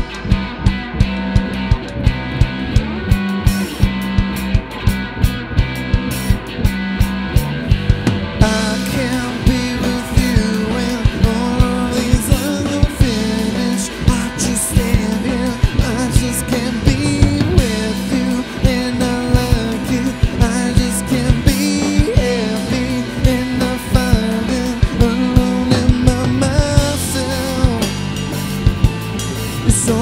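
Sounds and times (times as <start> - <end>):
rock band playing live: 0.0 - 30.0
man singing lead vocal: 8.4 - 28.3, 29.5 - 30.0.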